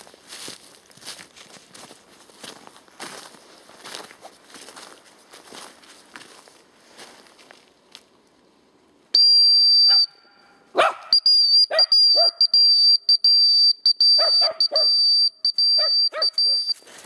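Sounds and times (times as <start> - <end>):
dog whistle blast: 9.2 - 12.8, 14.0 - 16.7
short whistle pips: 11.1 - 16.8
dog yelping and whining: 11.7 - 12.4, 15.8 - 16.7.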